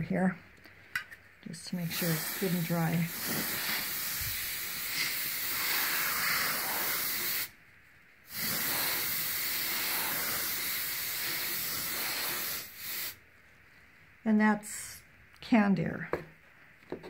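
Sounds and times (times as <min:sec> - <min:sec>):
compressed air spraying hiss: 0:01.7 - 0:07.6, 0:08.2 - 0:13.2.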